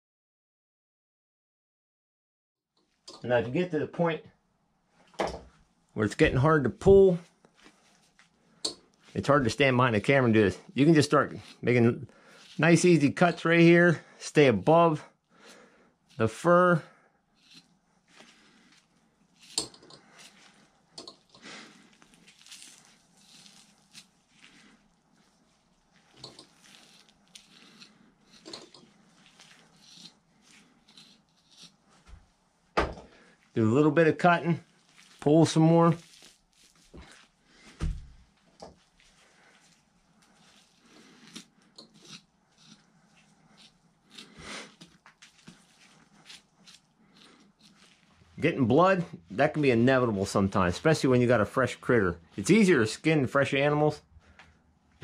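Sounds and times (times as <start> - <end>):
soft rustles and clicks: 7.2 - 9.2, 44.8 - 48.4
wet squishing and tearing of hide: 17.3 - 32.5, 34.2 - 52.8.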